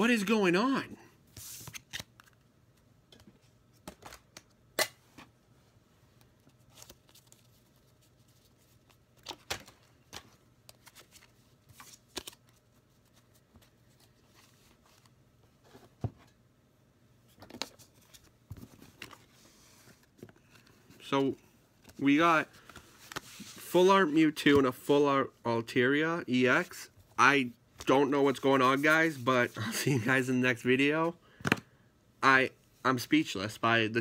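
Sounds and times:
trading cards rustling: 0:06.5 - 0:15.1.

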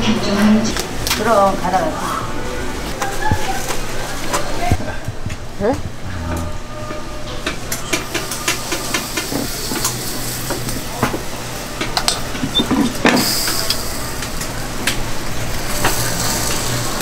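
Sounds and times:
batter sizzling on waffle iron: 0:08.0 - 0:17.0.

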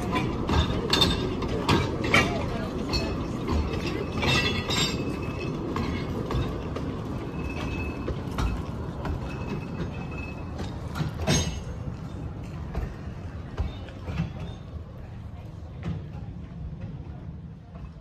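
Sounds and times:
train wheels rumbling: 0:00.0 - 0:18.0
faint wheel squeals: 0:13.4 - 0:15.0.

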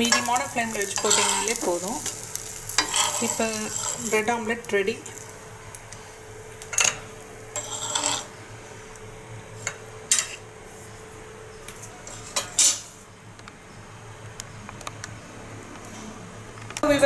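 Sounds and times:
spatula scraping griddle: 0:00.0 - 0:04.5, 0:06.8 - 0:08.3.

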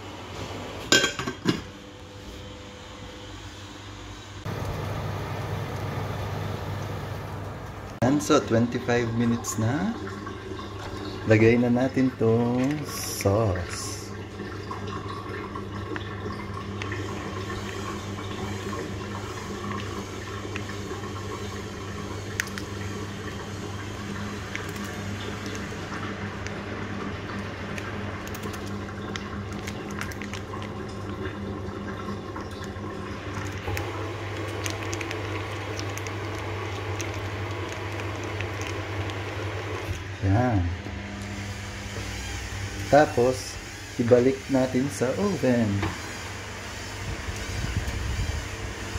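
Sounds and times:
kitchen fan whirring: 0:00.0 - 0:48.9
steady low hum: 0:01.0 - 0:14.3.

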